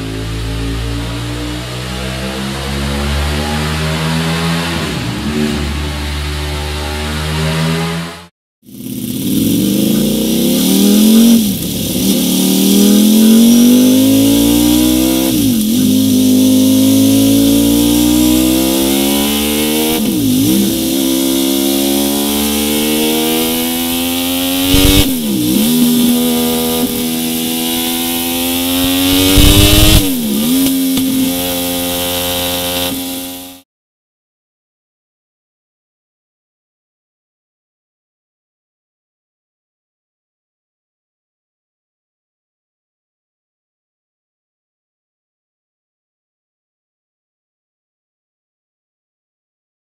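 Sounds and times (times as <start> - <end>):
motorcycle engine revving: 0.0 - 33.6
exhaust cracks: 8.8 - 33.3.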